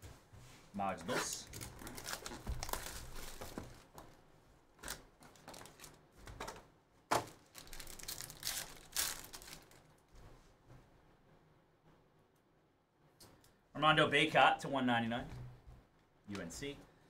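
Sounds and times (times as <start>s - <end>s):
foil pack tearing and crinkling: 1.5s - 4.0s, 4.8s - 6.0s, 7.2s - 9.8s.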